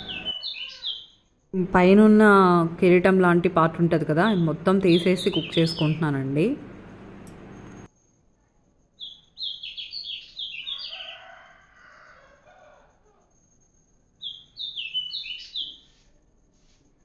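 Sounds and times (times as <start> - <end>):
low drawn-out bird call: 0.0 - 1.1.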